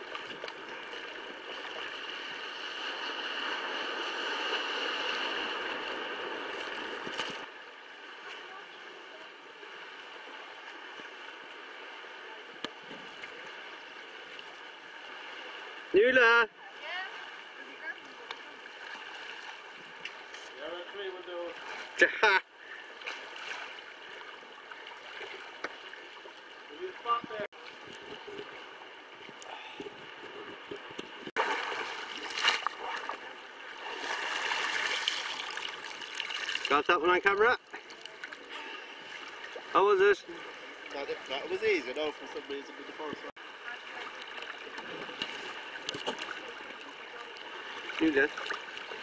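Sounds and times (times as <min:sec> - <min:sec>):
paddle sweeping through water: 0:00.0 - 0:07.5, 0:27.6 - 0:36.7
small waves lapping against kayak: 0:00.0 - 0:36.8, 0:37.6 - 0:49.0
water splashing and sloshing: 0:00.0 - 0:49.0.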